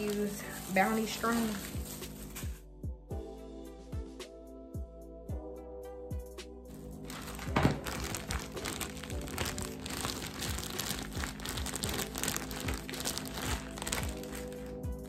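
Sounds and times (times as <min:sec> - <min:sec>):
plastic crinkling: 0:00.0 - 0:02.6, 0:06.7 - 0:15.0
background music with beat: 0:01.6 - 0:15.0.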